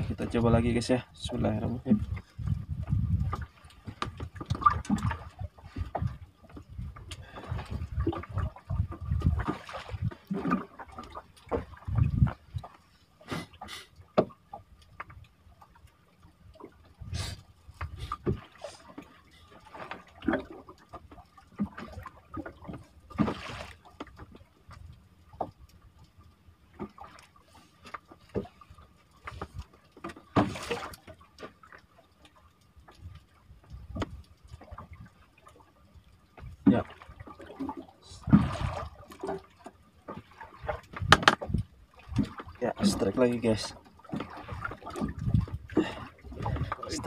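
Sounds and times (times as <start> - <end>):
water lapping against boat hull: 0.0 - 47.0
knocks on wooden boat: 41.0 - 41.5.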